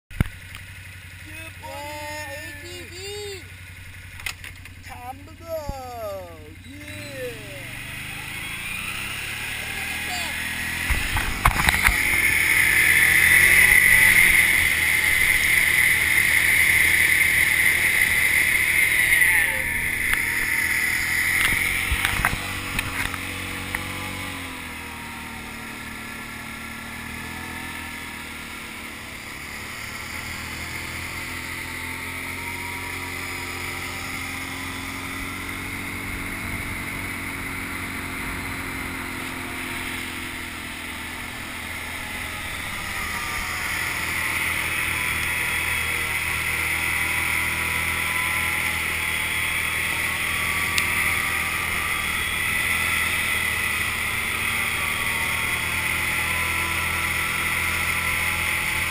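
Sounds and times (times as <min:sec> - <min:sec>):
quad engine running: 0:00.1 - 0:58.9.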